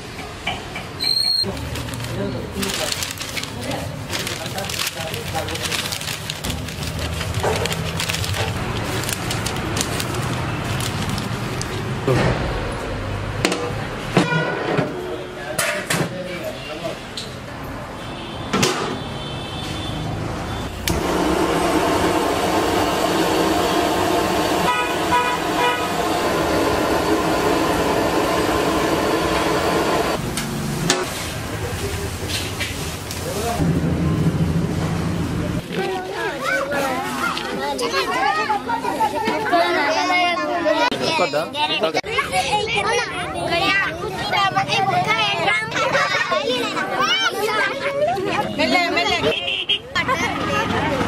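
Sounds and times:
loud background din: 0.0 - 51.0
newspaper rustling: 1.5 - 11.8
horn beeping: 24.6 - 26.7.

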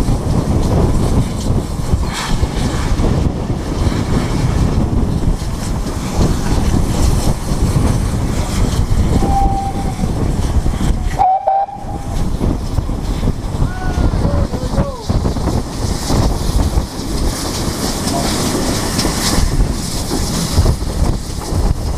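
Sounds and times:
train wheels rumbling: 0.0 - 21.9
wind on microphone: 0.0 - 21.9
steam whistle blasts: 9.2 - 10.0, 11.2 - 12.0.

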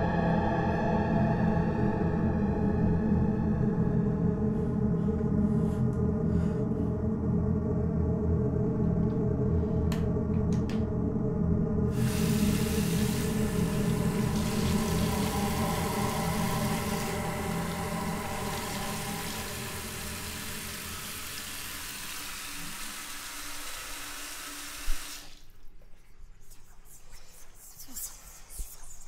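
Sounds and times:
low droning hum: 0.0 - 22.7
tap water running into sink: 12.5 - 25.3.

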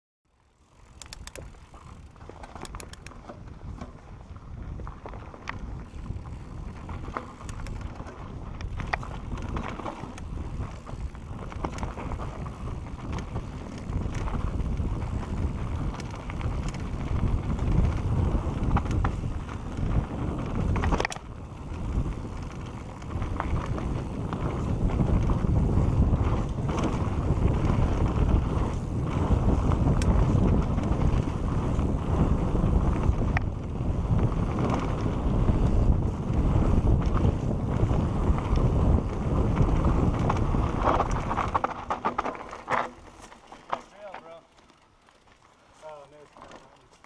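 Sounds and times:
bike frame and chain rattling: 0.6 - 47.0
wind rumbling on microphone: 0.7 - 43.4
tyres rolling over dirt: 3.2 - 47.0.

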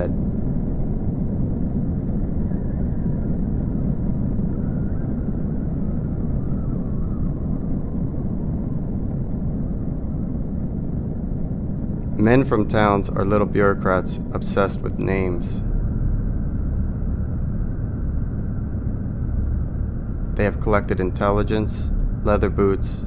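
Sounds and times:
loud low rumble: 11.2 - 23.0.

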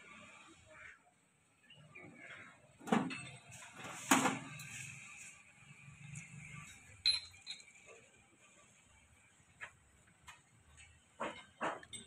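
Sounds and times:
metal parts clinking and knocking: 6.6 - 7.8.

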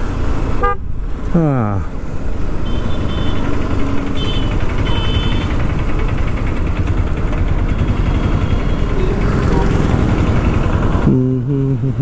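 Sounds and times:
traffic rumble: 0.0 - 12.0
motorcycle engine running: 2.6 - 12.0.

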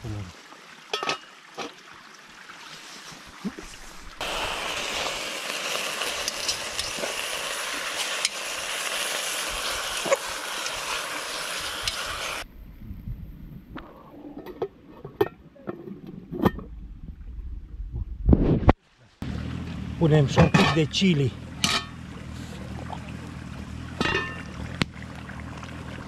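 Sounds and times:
metal pot lid clinking: 0.9 - 1.3, 21.6 - 22.0, 24.0 - 24.5
pork sizzling in a pot: 4.2 - 12.4.

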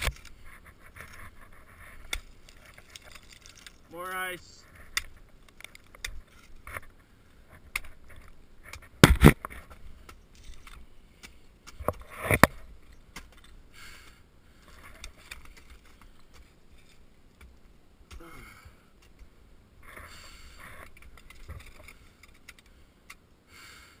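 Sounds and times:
metal clinks and scrapes on ice: 2.0 - 3.9.

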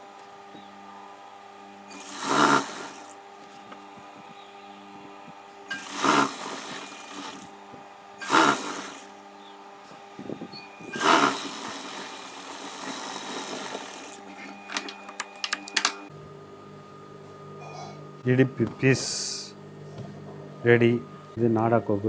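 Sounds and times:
sewing machine stitching: 5.7 - 7.5, 8.2 - 9.1, 10.9 - 14.9.

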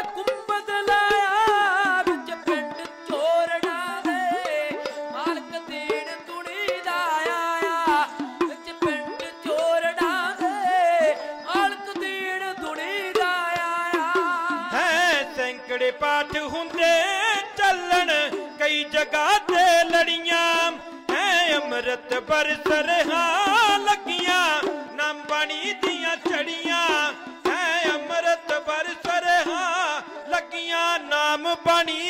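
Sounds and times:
hand drums tapped quickly: 0.0 - 15.3, 20.9 - 30.5.

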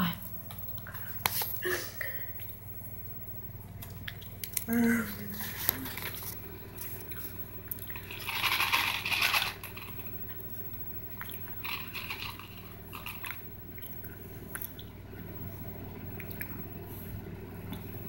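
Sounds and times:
steady low hum: 0.0 - 18.0
rustling box of sweets: 5.2 - 10.4, 11.4 - 13.5.

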